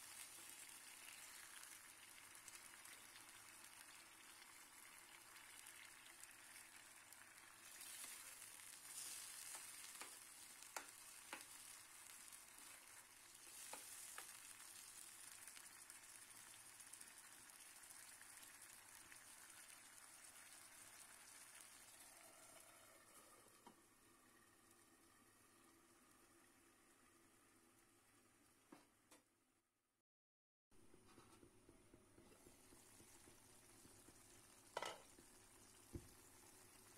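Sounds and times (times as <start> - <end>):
curry sizzling in a wok: 0.0 - 28.4, 32.0 - 36.9.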